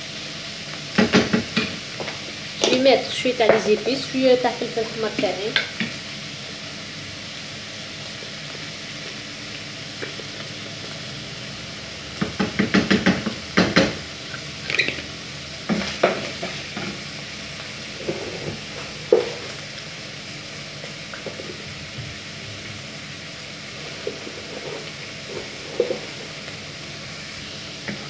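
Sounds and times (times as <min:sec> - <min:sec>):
food sizzling in a frying pan: 0:00.0 - 0:28.0
wooden spoon knocking on a pan: 0:01.0 - 0:02.1, 0:12.2 - 0:14.0, 0:15.7 - 0:17.0, 0:19.0 - 0:19.4.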